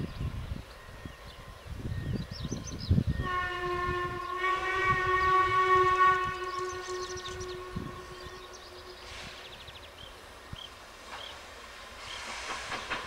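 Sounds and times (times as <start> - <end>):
birds chirping: 0.0 - 3.4, 4.1 - 13.0
steam locomotive whistle: 3.2 - 9.6.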